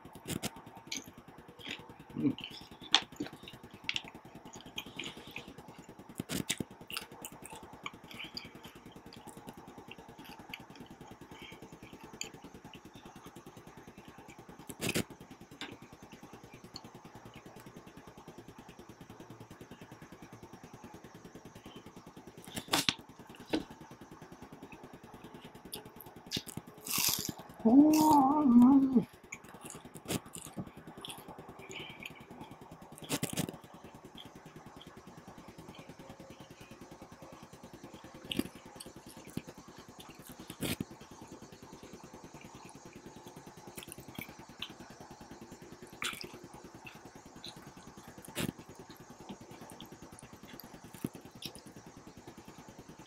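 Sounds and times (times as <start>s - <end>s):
soft chewing: 0.0s - 53.0s
person humming mm: 2.1s - 2.8s, 27.6s - 29.1s.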